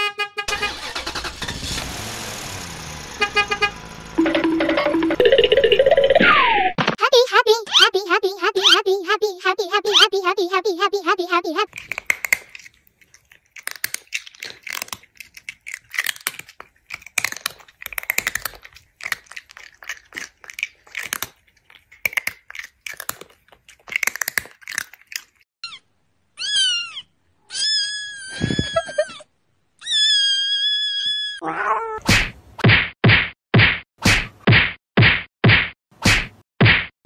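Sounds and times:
crunchy chewing: 11.7 - 25.5
cat meowing: 26.4 - 29.2.

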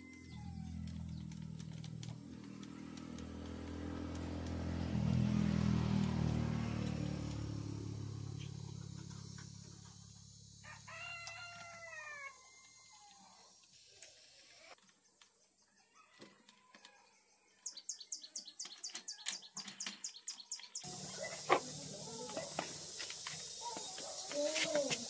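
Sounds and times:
engine passing by: 0.2 - 10.9, 19.8 - 25.0
rooster crowing: 10.6 - 13.5.

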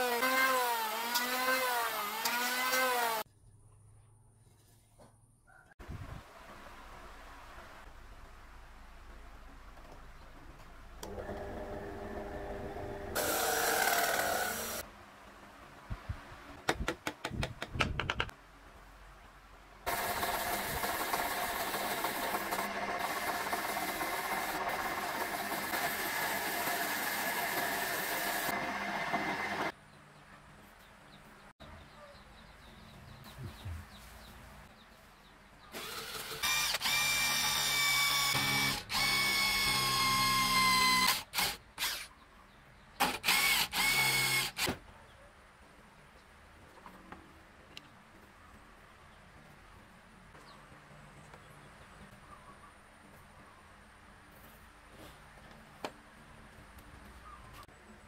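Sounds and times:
drill press with hole saw: 11.0 - 14.8, 19.9 - 29.7, 35.8 - 42.1, 43.0 - 44.7
cordless drill whining: 13.2 - 14.8, 35.8 - 42.1, 43.2 - 44.7
steady machine noise: 19.9 - 29.7.

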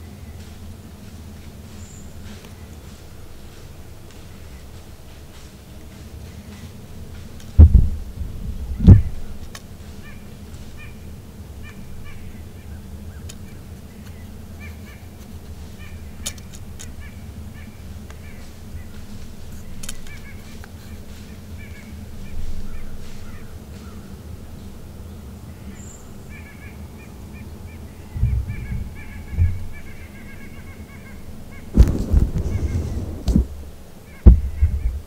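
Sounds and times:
distant birds calling: 0.0 - 35.0
low outdoor rumble: 0.0 - 35.0
heavy low thumps: 7.6 - 9.4, 28.1 - 29.9, 31.7 - 35.0.

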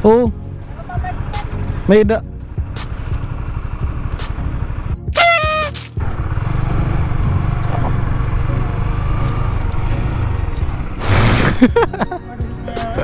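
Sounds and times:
motorcycle engine running: 6.0 - 11.0.

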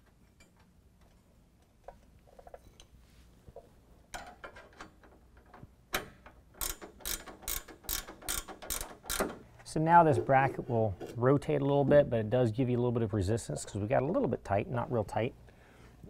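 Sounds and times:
ratchet wrench clicking: 6.6 - 9.4.

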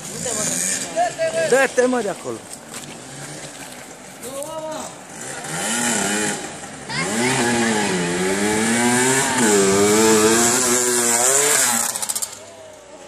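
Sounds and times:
motocross bike engine revving: 0.0 - 1.5, 4.9 - 12.5.

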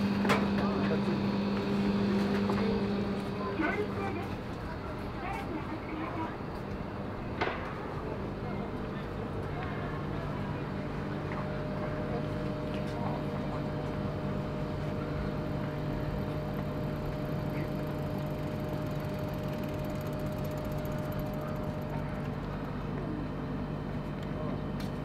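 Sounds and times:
cooling unit hum: 0.0 - 25.0
constant tone: 9.6 - 23.3.

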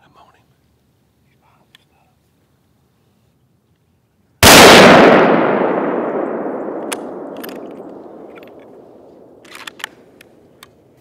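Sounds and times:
rifle shot echoing: 4.4 - 10.5.

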